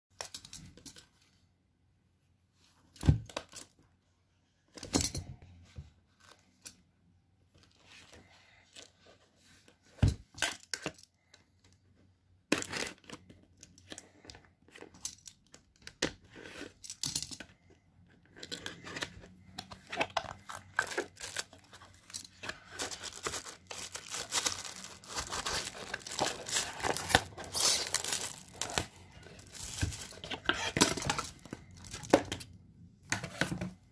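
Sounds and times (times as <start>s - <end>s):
cardboard rustling scraping and tearing: 22.4s - 32.2s.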